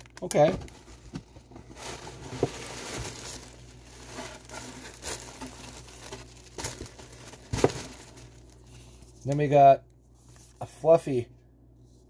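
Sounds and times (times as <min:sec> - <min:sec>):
tissue paper rustling and crinkling: 0:00.6 - 0:09.2.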